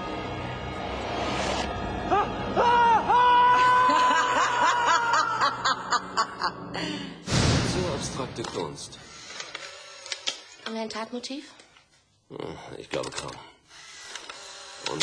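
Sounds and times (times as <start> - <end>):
eerie background music: 0.0 - 10.2.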